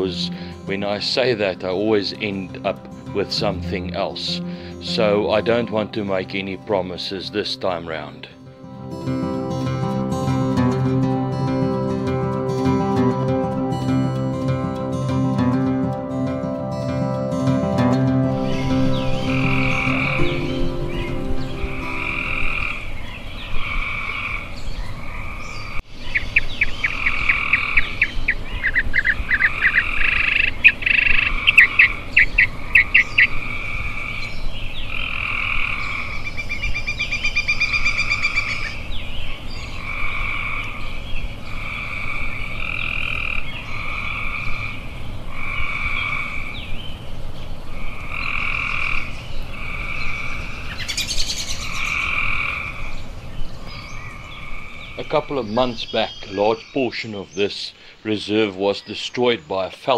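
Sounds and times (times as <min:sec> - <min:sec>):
frogs calling: 0:00.0 - 0:13.1, 0:17.5 - 0:47.0, 0:47.6 - 0:58.9
fast higher trill: 0:12.8 - 0:23.1
rapid clicking frog calls: 0:26.6 - 0:34.3, 0:34.9 - 0:36.5, 0:39.8 - 0:46.6, 0:47.8 - 0:52.9.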